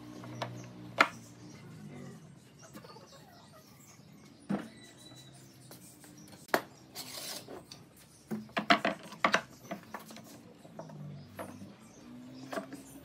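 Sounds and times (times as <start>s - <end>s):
short scrape: 7.0s - 7.6s.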